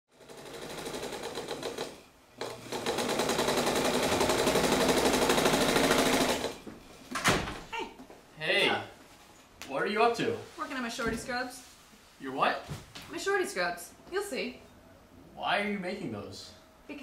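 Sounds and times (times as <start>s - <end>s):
sewing machine stitching: 0.1s - 6.6s.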